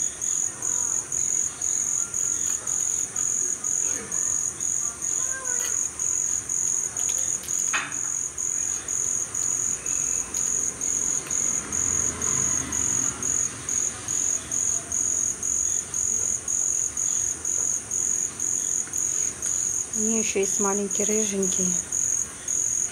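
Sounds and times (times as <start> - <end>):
crickets chirping: 0.0 - 22.9.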